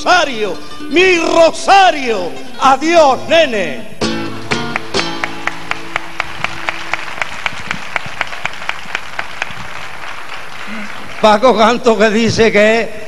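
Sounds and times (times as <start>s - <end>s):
flamenco guitar strummed chords: 0.0s - 7.0s
rhythmic applause: 4.3s - 12.2s.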